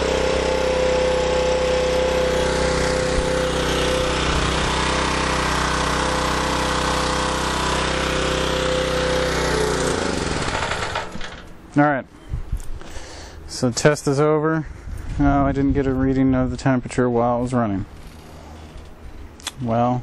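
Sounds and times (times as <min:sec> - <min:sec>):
generator engine running: 0:00.0 - 0:11.8.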